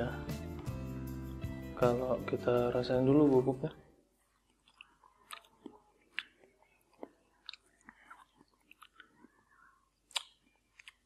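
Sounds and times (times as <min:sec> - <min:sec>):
lip smacks: 0:04.4 - 0:09.3, 0:10.0 - 0:11.0
tongue clicks: 0:10.1 - 0:11.0.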